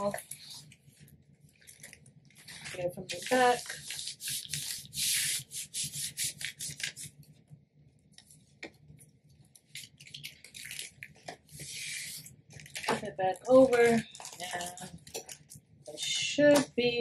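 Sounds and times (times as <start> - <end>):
hand rubbing over plastic sheet: 2.4 - 7.2.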